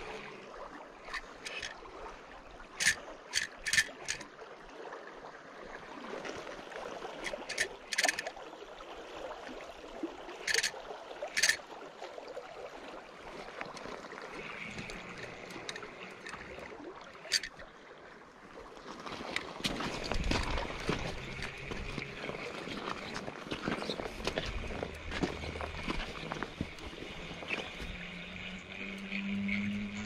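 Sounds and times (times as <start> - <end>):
river current rushing: 0.0 - 4.3, 6.0 - 12.0, 12.6 - 30.0
fishing reel ratcheting buzz: 1.1 - 1.8, 2.8 - 4.2, 7.2 - 8.3, 10.4 - 11.6, 14.5 - 16.6, 17.2 - 17.6
rumbling handling noise: 2.8 - 4.2.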